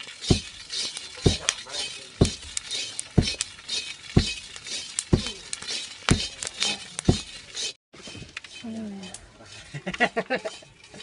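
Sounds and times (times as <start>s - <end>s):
corn kernels rattling in wok: 0.0s - 11.0s
sticks knocking on wok: 0.3s - 0.6s, 1.2s - 1.6s, 2.2s - 2.6s, 3.2s - 3.5s, 5.1s - 5.4s, 6.1s - 6.5s.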